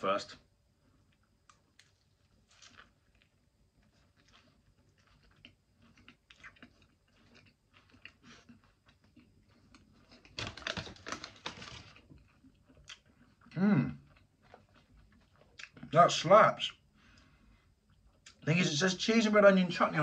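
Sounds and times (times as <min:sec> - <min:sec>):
person chewing food: 0:01.0 - 0:15.9.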